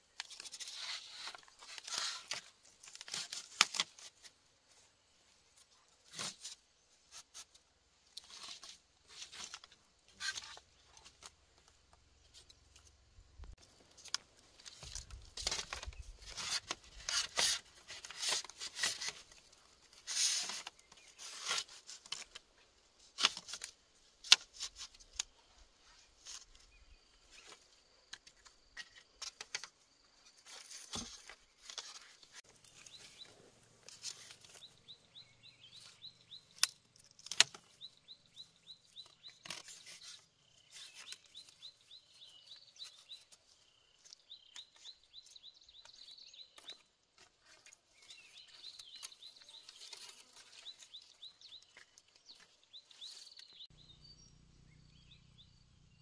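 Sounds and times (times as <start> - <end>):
bamboo clicks and knocks: 0.0 - 4.4, 5.6 - 25.4, 26.2 - 34.8, 35.7 - 37.9, 39.0 - 41.6
bamboo rustling and scraping: 0.0 - 53.8.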